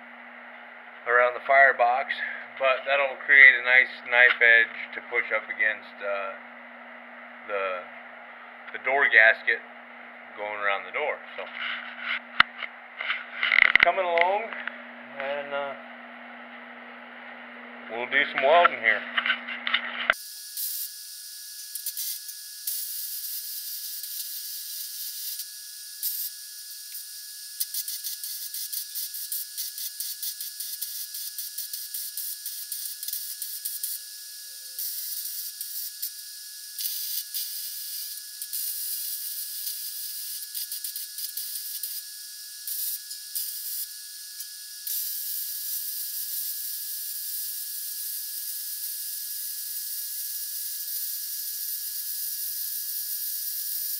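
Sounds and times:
welding arc hissing and crackling: 18.2 - 53.9.

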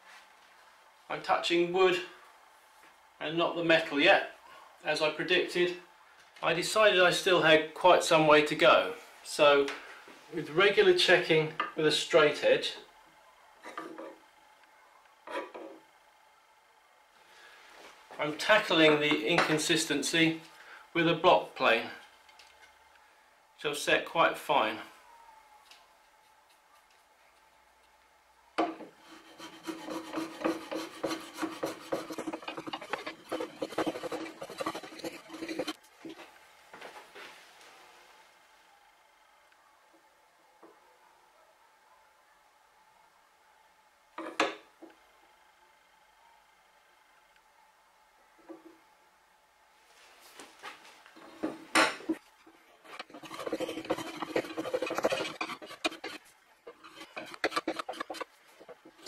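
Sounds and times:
plane scraping wood: 28.8 - 35.8, 52.1 - 59.0.

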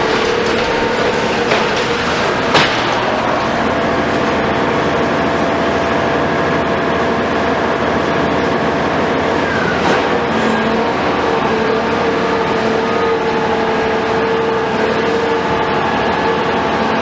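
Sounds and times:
excavator diesel engine running: 0.0 - 17.0.

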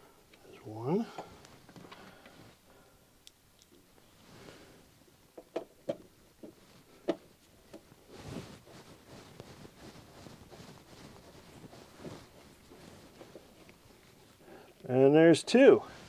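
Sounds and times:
hands and sleeve rustling: 6.0 - 16.0.

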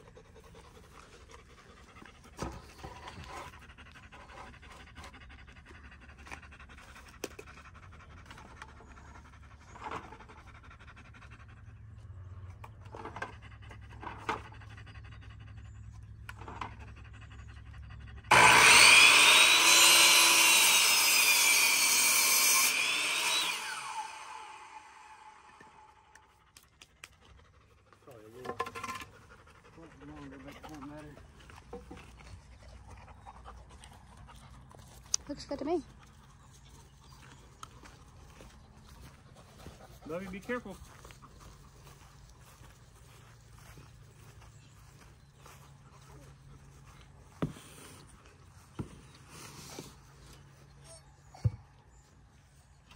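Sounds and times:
miter saw cutting wood: 18.3 - 26.3.

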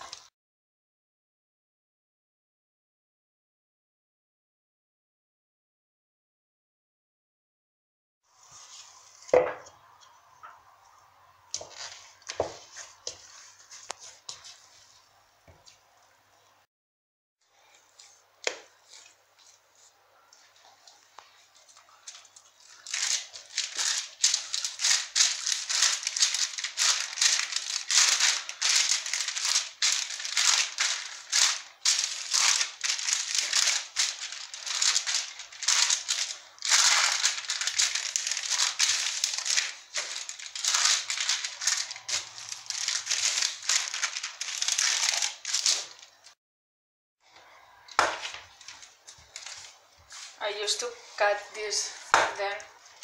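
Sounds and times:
paper crinkling under hands: 18.8 - 46.4, 48.1 - 50.9.

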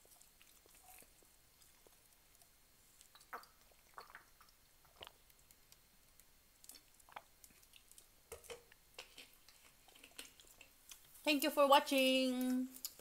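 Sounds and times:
person gulping water: 3.0 - 5.5, 6.6 - 10.8.

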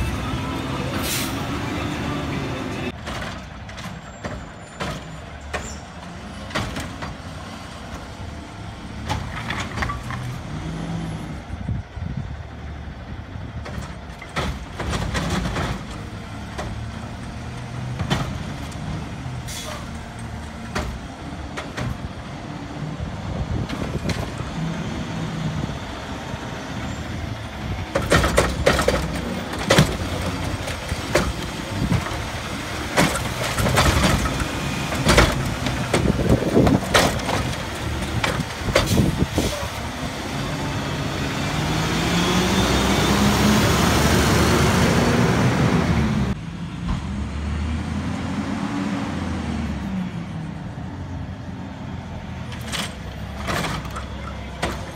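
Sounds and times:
garbage truck engine: 0.0 - 54.9
bangs and clunks of cart dumping: 2.8 - 8.1, 8.9 - 10.7, 13.6 - 22.2, 23.5 - 24.8, 26.8 - 40.1, 52.4 - 54.9.

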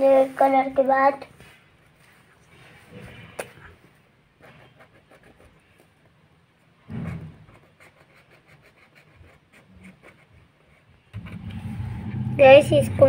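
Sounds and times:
pen scratching and tapping on paper: 6.9 - 11.7.

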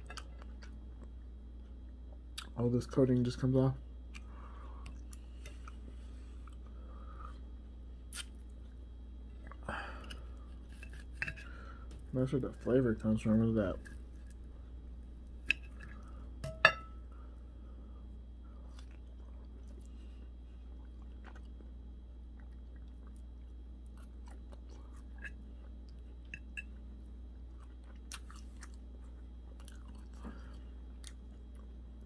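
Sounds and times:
steady low hum: 0.0 - 32.0
person chewing: 4.1 - 12.0, 18.5 - 31.8
cutlery clinking on ceramic plate: 16.4 - 17.0.

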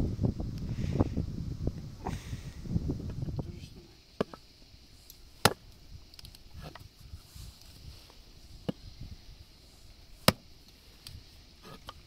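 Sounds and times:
hatchet chopping wood: 5.4 - 5.7, 10.2 - 10.4.

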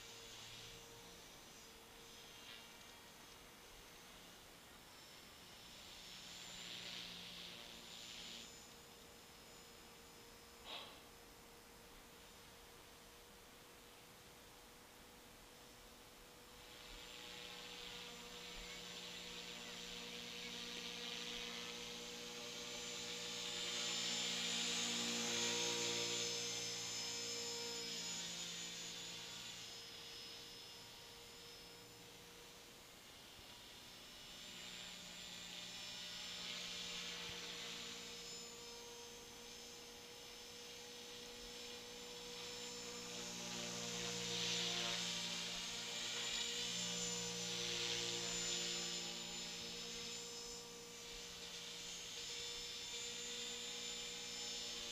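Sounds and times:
rc helicopter motor whine: 0.0 - 54.9.

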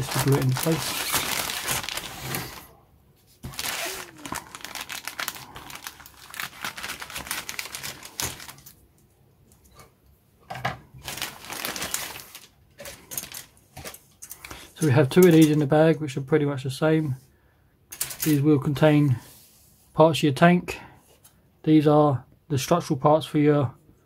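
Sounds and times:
plastic bag crinkling: 0.0 - 2.7, 3.4 - 8.8, 11.0 - 13.6.

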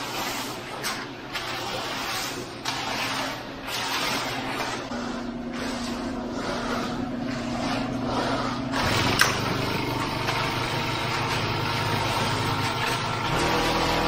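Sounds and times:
small gas engine running: 8.8 - 14.0.

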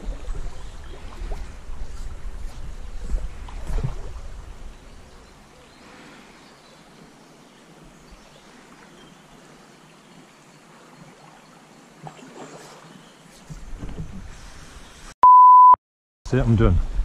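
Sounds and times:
small stream running: 0.0 - 15.1.

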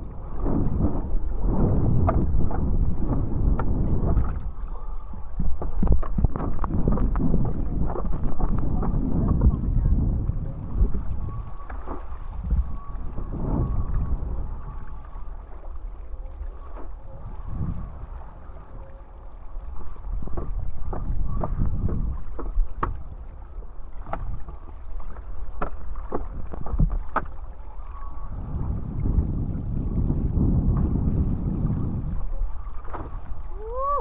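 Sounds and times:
water rushing: 0.0 - 34.0
wind buffeting microphone: 0.0 - 34.0
water slaps: 0.4 - 4.5, 11.6 - 12.3, 20.2 - 27.4, 32.7 - 34.0.

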